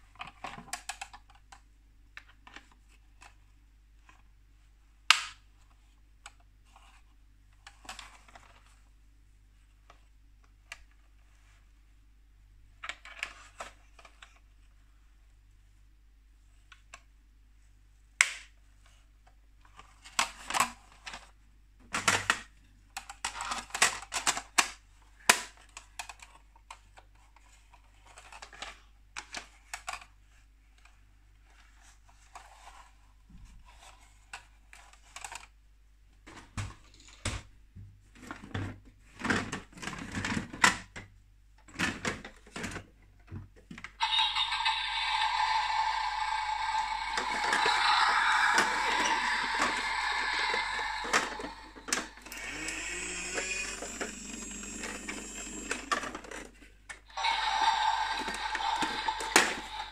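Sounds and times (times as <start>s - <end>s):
plastic toy parts clicking: 23.0s - 26.8s.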